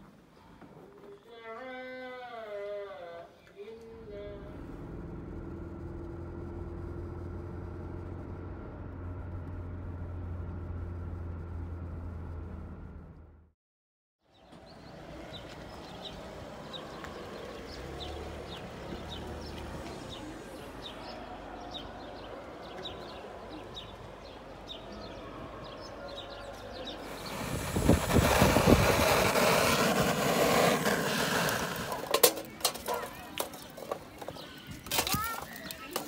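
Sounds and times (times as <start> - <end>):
rushing noise: 27.0 - 32.3.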